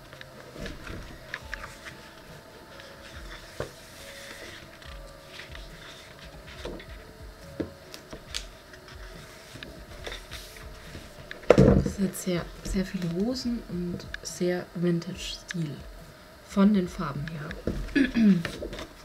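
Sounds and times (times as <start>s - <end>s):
paper rustling: 0.2s - 7.1s.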